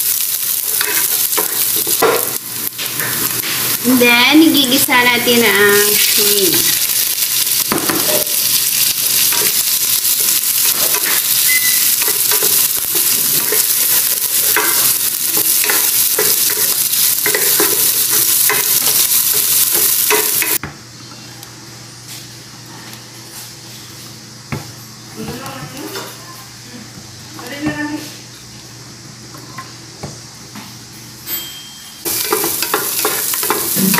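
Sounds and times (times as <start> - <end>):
shrimp sizzling in oil: 0.0 - 20.6, 32.0 - 33.9.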